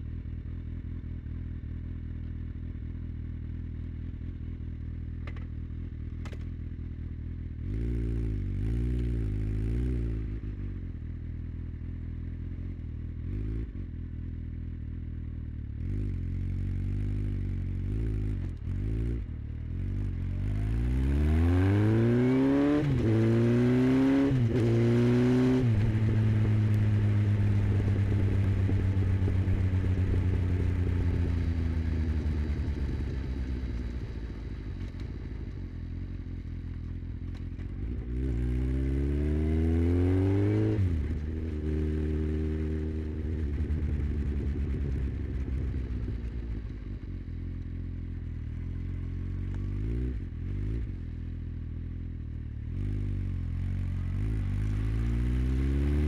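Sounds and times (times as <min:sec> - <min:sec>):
motorcycle accelerating: 0:00.0 - 0:56.0
motorcycle engine idling: 0:25.8 - 0:38.1, 0:43.0 - 0:49.7.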